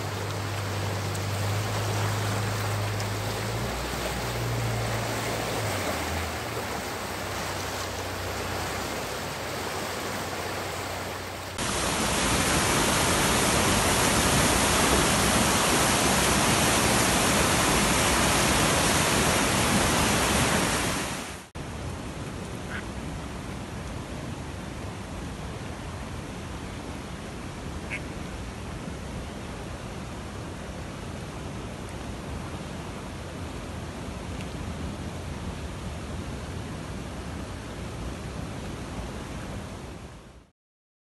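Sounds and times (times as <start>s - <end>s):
floodwater rushing: 0.0s - 40.1s.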